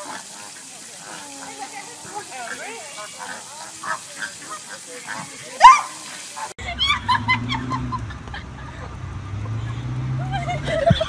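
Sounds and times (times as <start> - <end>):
flamingos honking and grunting: 0.0 - 10.4
low engine hum: 6.6 - 11.0.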